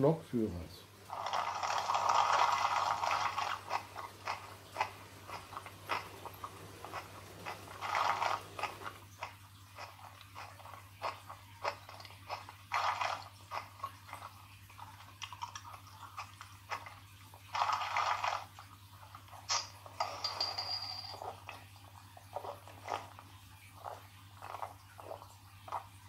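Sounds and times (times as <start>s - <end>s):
biting and chewing: 1.1s - 20.3s, 21.2s - 26.0s.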